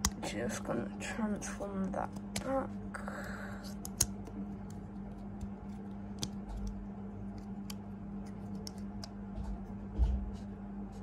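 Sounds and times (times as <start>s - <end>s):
steady low hum: 0.0s - 11.0s
plastic toy clicks and snaps: 3.8s - 4.8s.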